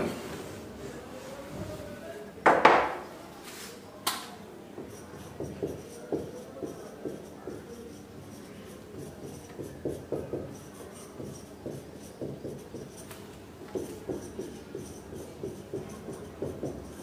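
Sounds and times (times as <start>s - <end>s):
marker pen writing on whiteboard: 4.8s - 17.0s.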